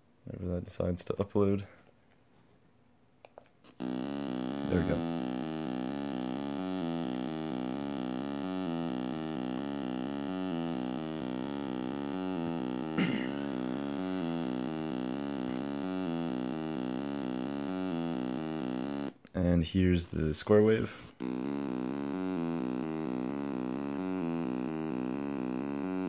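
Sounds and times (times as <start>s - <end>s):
sawtooth synth note pattern: 3.7s - 19.2s, 21.2s - 26.0s.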